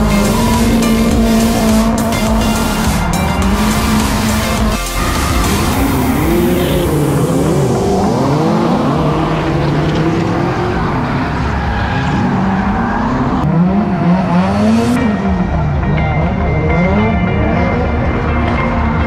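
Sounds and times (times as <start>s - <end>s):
music: 0.0s - 7.9s, 13.6s - 19.0s
car engines revving: 0.0s - 19.0s.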